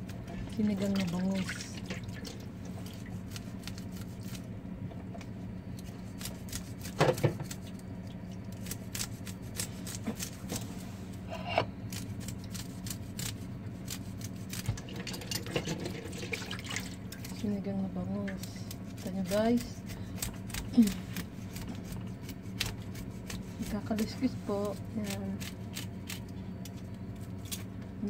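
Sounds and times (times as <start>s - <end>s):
clatter in metal sink: 14.8s - 17.0s.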